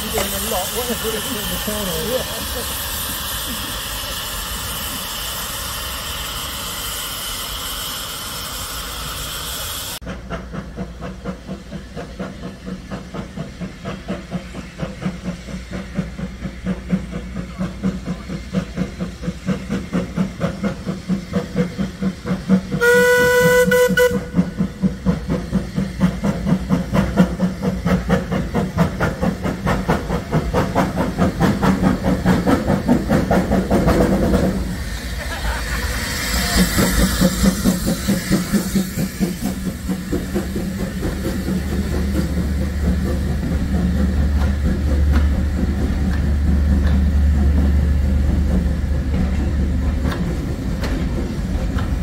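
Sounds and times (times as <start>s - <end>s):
steam hissing: 0.0s - 52.0s
steam locomotive exhaust beats: 0.0s - 52.0s
steam whistle blast: 22.8s - 24.4s.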